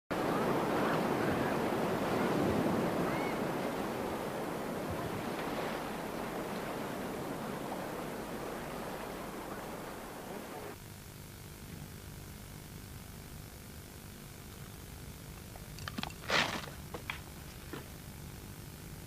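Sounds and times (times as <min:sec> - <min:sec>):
sea waves washing: 0:00.1 - 0:10.8.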